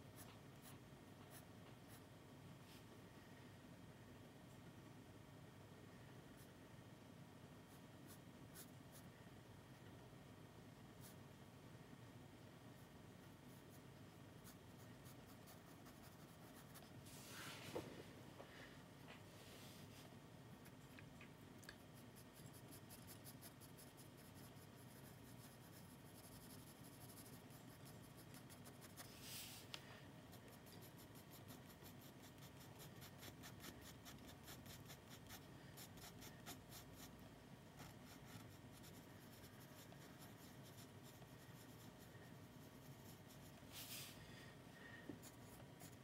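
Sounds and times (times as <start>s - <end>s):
pencil scratching on paper: 14.4s - 16.9s, 21.9s - 29.2s, 30.3s - 37.2s, 37.8s - 43.6s, 45.2s - 46.0s.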